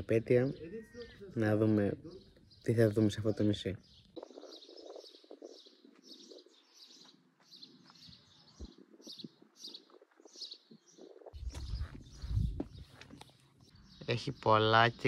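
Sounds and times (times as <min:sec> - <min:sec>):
small bird chirping: 0:00.0 - 0:15.0
low microphone rumble: 0:11.2 - 0:13.0.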